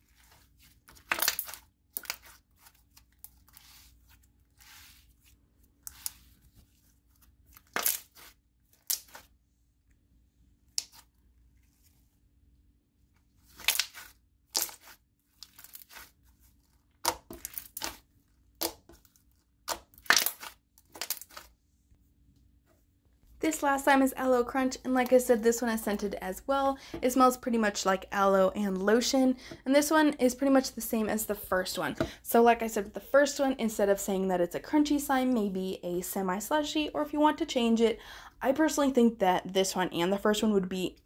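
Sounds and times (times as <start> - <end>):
slime squelching: 0.0 - 10.0, 13.1 - 21.6.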